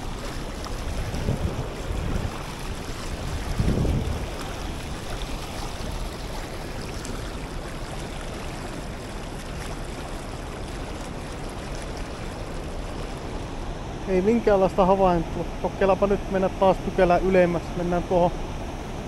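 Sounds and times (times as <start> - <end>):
river rapid rushing: 0.0 - 19.0.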